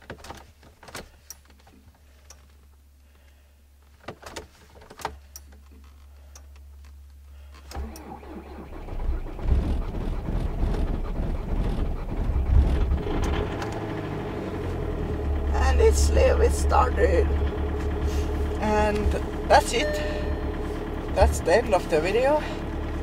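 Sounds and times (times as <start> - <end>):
starter motor cranking: 7.7 - 15.9, 16.6 - 23.0
diesel engine running: 7.8 - 23.0.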